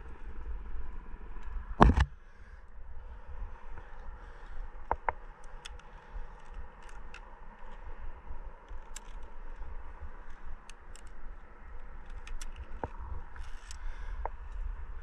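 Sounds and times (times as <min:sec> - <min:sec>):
gear clicking and scraping: 0:03.8 - 0:14.7
wind on microphone: 0:06.0 - 0:15.0.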